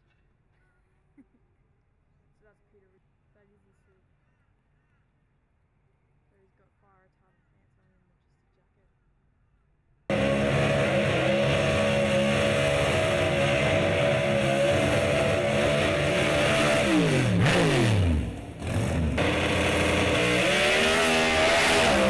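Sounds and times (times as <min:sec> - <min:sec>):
racing car engine at full throttle: 0:10.1 - 0:22.0.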